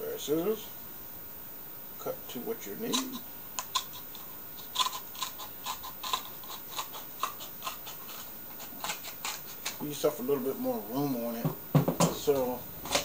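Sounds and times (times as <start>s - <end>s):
scissors snipping cardboard: 4.8s - 9.8s.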